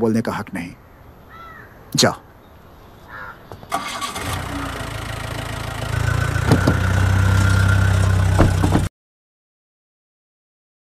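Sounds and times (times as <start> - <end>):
vehicle engine humming: 3.7 - 8.9
sharp knocks: 6.4 - 7.1, 8.3 - 8.9.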